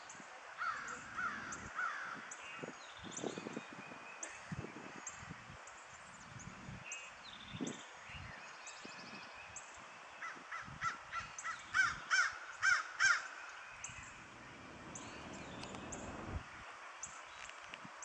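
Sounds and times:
crow cawing: 0.6s - 2.2s, 11.8s - 13.3s.

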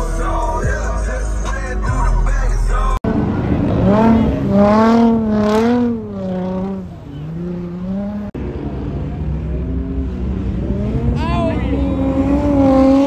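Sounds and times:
car engine revving: 0.0s - 13.0s
truck engine revving in mud: 3.1s - 13.0s.

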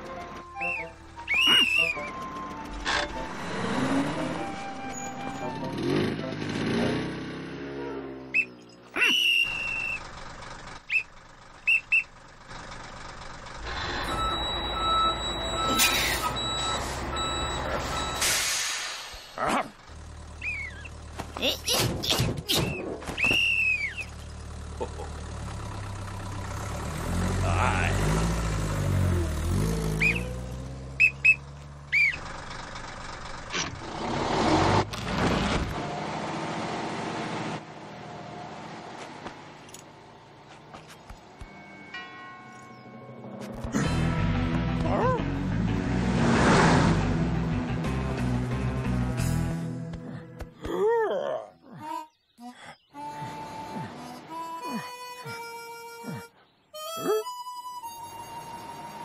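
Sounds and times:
truck engine running low: 0.0s - 21.6s, 22.8s - 41.8s
whistle blasts: 0.6s - 2.2s, 8.3s - 10.0s, 10.9s - 11.1s, 22.6s - 24.1s, 31.0s - 32.2s
reversing alarm beeping: 13.7s - 18.6s.

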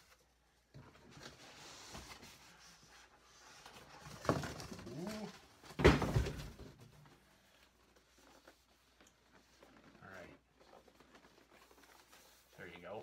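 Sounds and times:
box thumping down: 5.7s - 6.8s.

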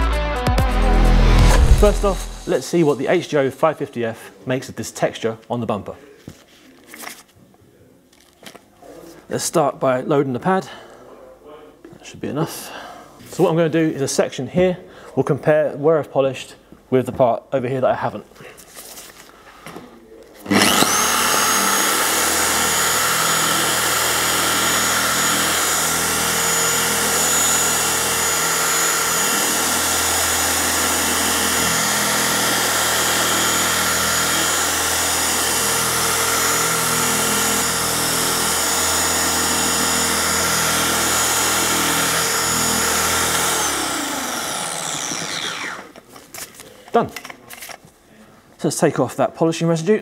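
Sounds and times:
machine polisher whining: 20.4s - 46.0s.

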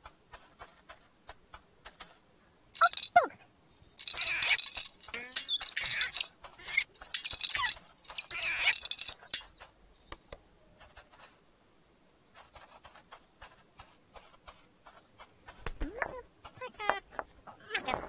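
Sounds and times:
cartoon squeaky chirping: 2.8s - 3.4s, 4.0s - 9.6s.

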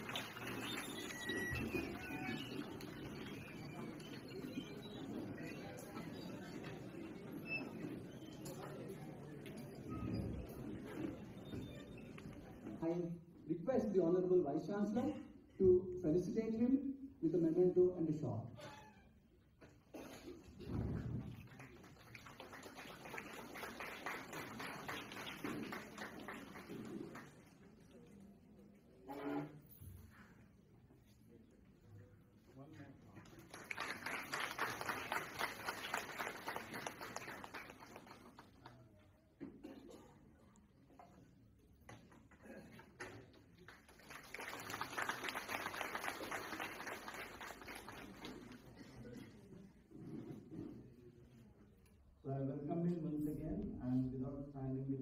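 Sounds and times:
audience applauding: 0.0s - 7.6s, 21.2s - 27.5s, 33.2s - 38.8s, 43.6s - 48.8s.

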